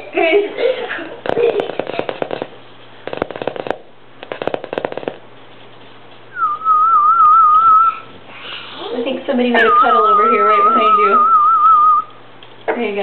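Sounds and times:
rapid tapping: 1.2 - 5.6.

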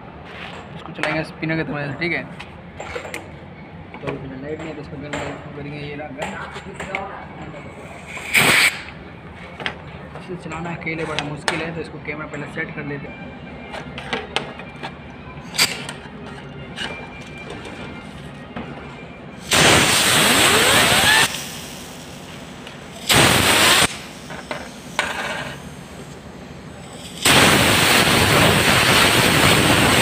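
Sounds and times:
air blow gun hissing blasts: 7.9 - 8.9, 19.4 - 30.0
spinning bearing whine: 13.1 - 30.0.

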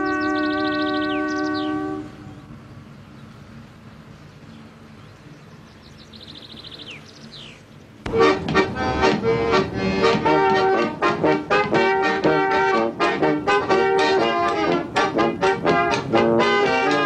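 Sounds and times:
quiet steady rumble: 0.1 - 17.0
brass band playing: 8.1 - 17.0.

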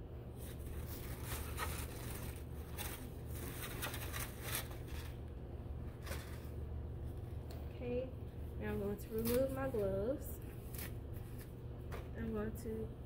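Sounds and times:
steady low hum: 0.0 - 13.0
paper crinkling: 0.4 - 5.3, 5.9 - 6.6.

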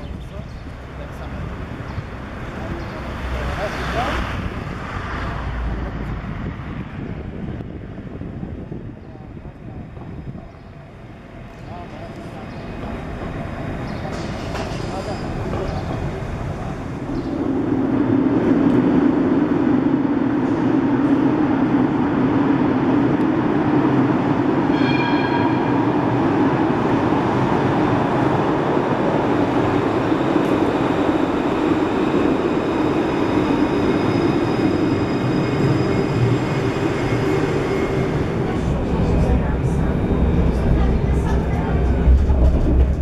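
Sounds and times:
tram rumbling in tunnel: 0.0 - 43.0
short ringing chime: 24.7 - 26.1.

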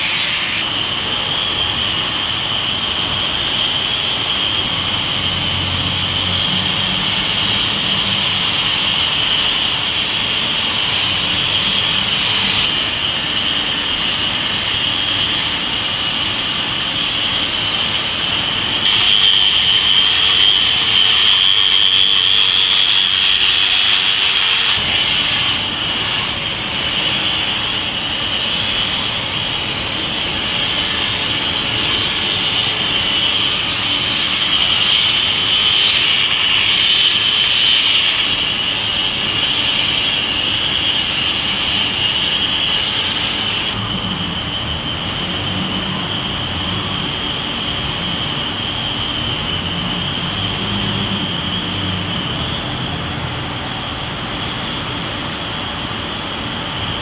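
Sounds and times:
angle grinder grinding metal: 0.0 - 0.7, 4.7 - 43.8.

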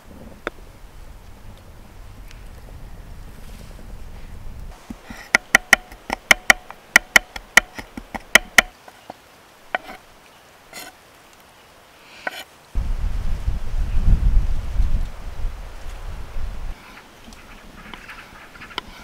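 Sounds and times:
knife chopping on wooden board: 4.8 - 8.8.

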